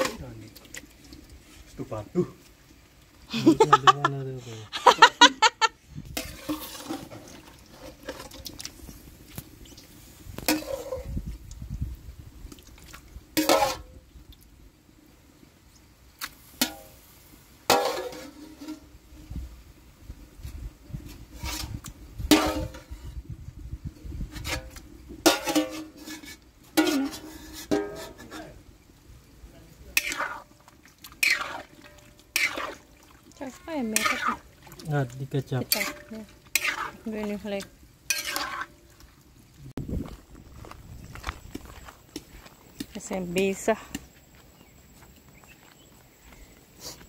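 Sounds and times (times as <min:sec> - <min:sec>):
metal spatula scraping bowl: 0:06.1 - 0:08.7, 0:10.4 - 0:11.2, 0:13.4 - 0:13.9, 0:21.1 - 0:23.2, 0:24.3 - 0:28.6, 0:29.9 - 0:38.9
wet offal squelching: 0:30.0 - 0:37.1.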